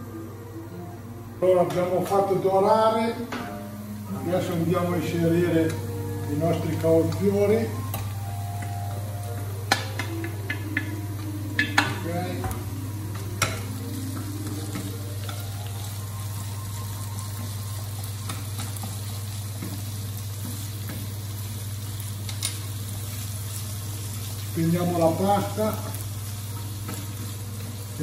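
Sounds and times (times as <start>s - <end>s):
vegetables sizzling in hot oil: 3.7s - 28.0s
utensils knocking against pan: 9.7s - 15.4s.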